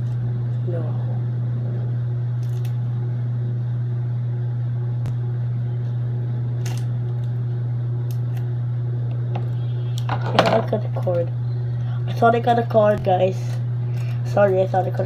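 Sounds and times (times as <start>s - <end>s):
steady low hum: 0.0s - 15.0s
scissors snipping wrapper: 2.4s - 2.8s, 6.6s - 7.3s.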